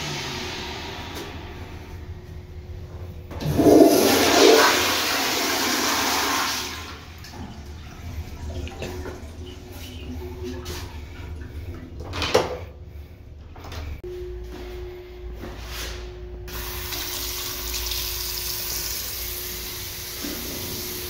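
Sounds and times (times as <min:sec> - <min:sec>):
toilet flushing rush of water: 0:03.4 - 0:12.0, 0:16.5 - 0:21.0
quiet running water: 0:06.9 - 0:12.2, 0:16.6 - 0:21.0.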